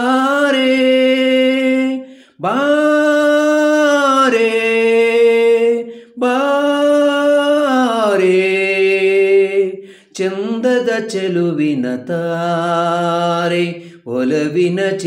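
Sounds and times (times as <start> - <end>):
man singing unaccompanied: 0.0 - 15.0
man breathing in: 2.0 - 2.4, 5.8 - 6.2, 9.8 - 10.2, 13.8 - 14.1.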